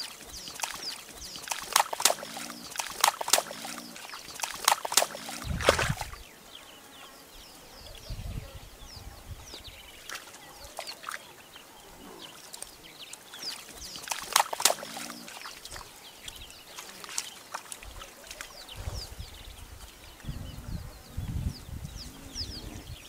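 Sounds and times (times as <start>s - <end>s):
animals splashing through mud: 0.0s - 6.3s, 10.0s - 11.5s, 12.2s - 19.1s.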